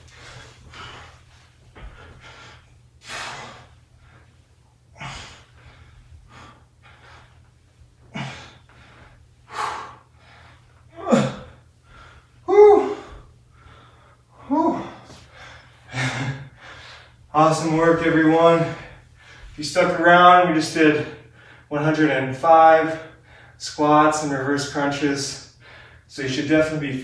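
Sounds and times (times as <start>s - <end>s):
man exhaling forcefully: 3.0s - 3.8s.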